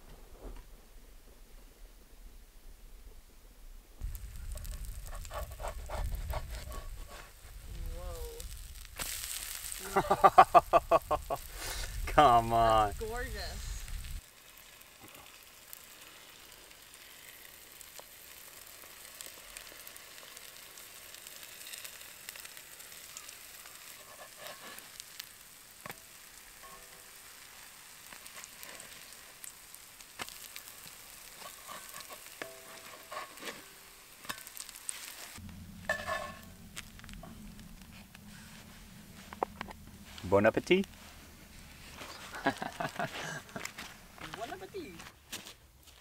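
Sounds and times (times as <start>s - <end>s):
pancakes sizzling in oil: 4.0s - 46.0s
wooden spatula scraping pan: 23.8s - 24.9s, 31.3s - 33.7s, 35.8s - 37.2s.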